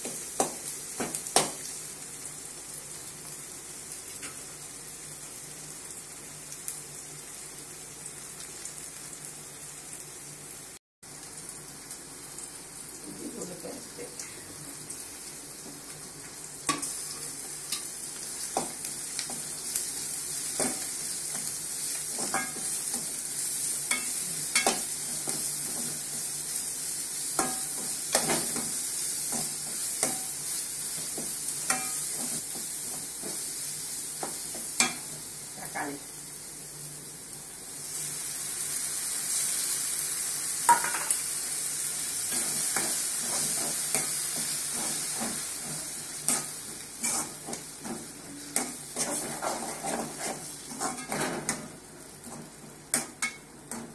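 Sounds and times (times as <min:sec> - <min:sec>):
food sizzling in hot oil: 0:00.0 - 0:53.9
spoon scraping and clinking on pan: 0:22.2 - 0:23.0, 0:31.6 - 0:32.3, 0:48.6 - 0:51.6.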